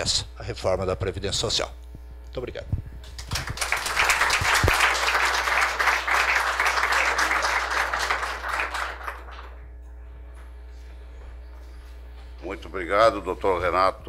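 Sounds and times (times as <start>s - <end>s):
audience applauding: 3.2s - 9.6s.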